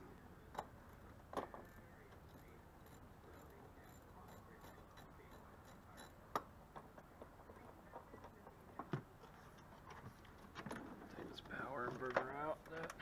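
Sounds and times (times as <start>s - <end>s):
hand tools tapping on metal: 2.1s - 7.1s.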